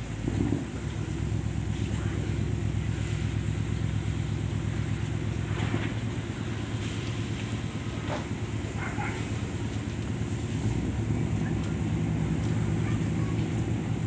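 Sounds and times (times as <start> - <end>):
diesel engine rumble: 0.0 - 14.0.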